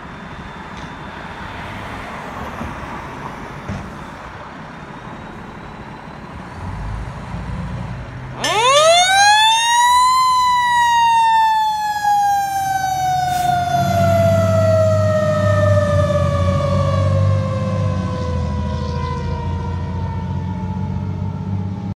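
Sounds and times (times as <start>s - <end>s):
truck engine rumble: 0.0s - 22.0s
mechanical siren winding down: 8.4s - 21.9s.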